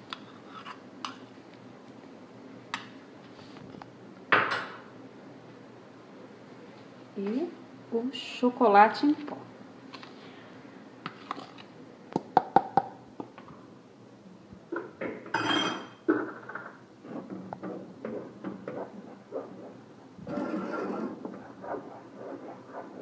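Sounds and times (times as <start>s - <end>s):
spoon stirring and scraping: 0.1s - 1.2s.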